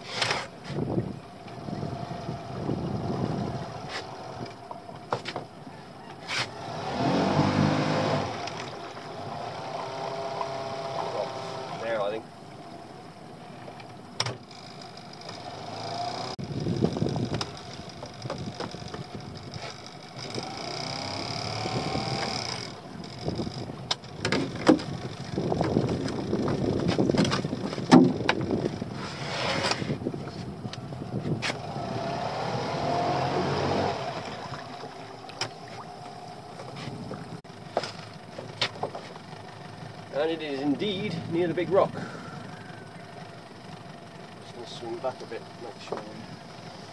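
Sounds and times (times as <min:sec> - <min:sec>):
sharp knocks and bumps: 0:23.9 - 0:28.6
rope hauled over boat hull: 0:24.0 - 0:30.0.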